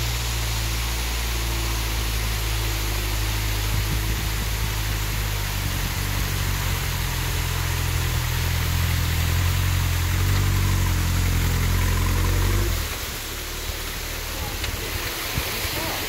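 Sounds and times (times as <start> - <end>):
buggy engine at low revs: 0.0 - 16.0
small waterfall rushing: 0.0 - 16.0.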